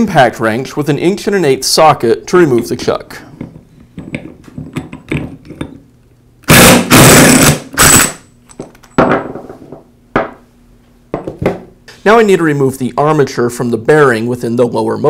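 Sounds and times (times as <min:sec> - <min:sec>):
impact driver hammering: 0:06.5 - 0:08.2.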